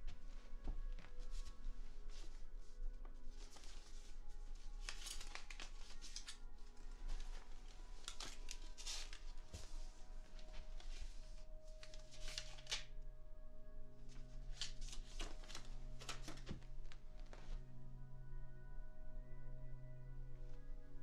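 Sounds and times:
paper rustling and tearing: 0:03.4 - 0:09.5, 0:11.8 - 0:12.9.

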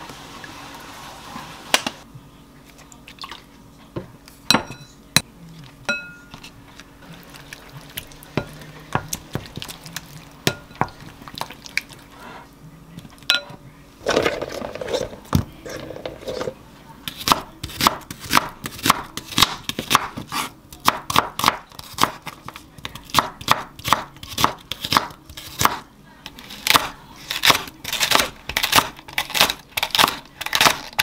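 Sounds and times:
glass bowl clinks: 0:04.5 - 0:05.0, 0:05.9 - 0:06.4, 0:13.3 - 0:13.6
spoon stirring thick sauce: 0:05.4 - 0:13.5.

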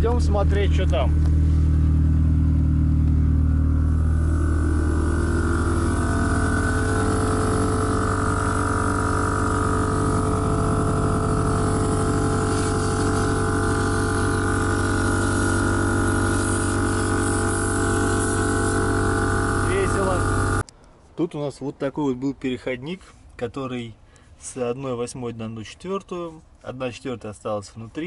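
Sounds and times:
air compressor humming: 0:00.0 - 0:20.6.

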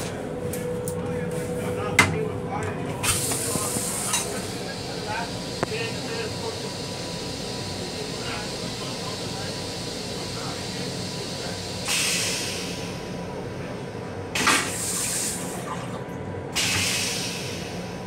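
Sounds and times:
railcar steady hum: 0:00.0 - 0:18.0
toilet flushing water sprays: 0:03.0 - 0:13.0, 0:14.3 - 0:18.0.

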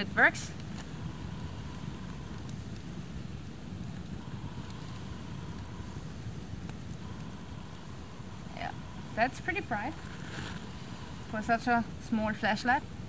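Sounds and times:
campfire crackling: 0:00.0 - 0:13.0.

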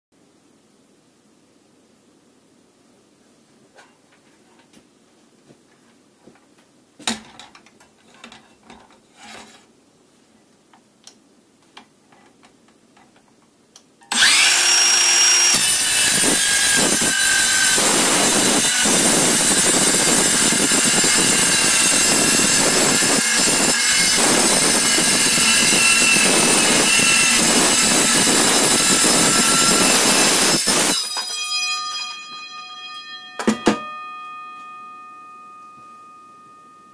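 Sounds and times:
circular saw cutting steel: 0:14.1 - 0:36.9
ringing metal tones: 0:29.1 - 0:36.9
sharp metal clanks: 0:30.6 - 0:36.9.

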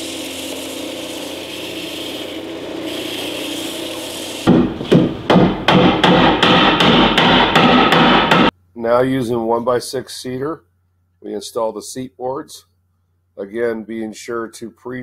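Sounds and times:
belt sander running: 0:00.0 - 0:04.9
hammer blows on wood: 0:04.4 - 0:08.5.

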